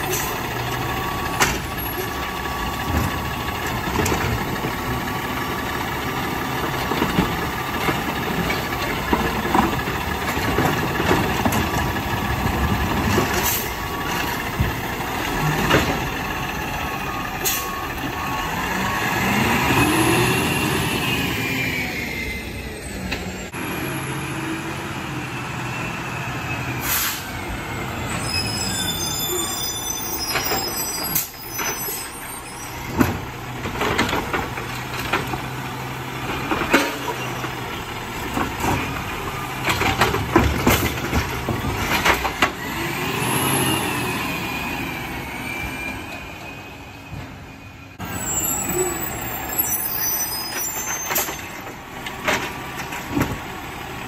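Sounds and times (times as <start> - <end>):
cart clanking and clattering: 0.0 - 18.2, 28.2 - 43.0, 48.0 - 54.0
truck engine and hydraulics: 0.0 - 54.0
air brakes hissing: 13.4 - 13.8, 17.3 - 17.9, 26.7 - 27.4.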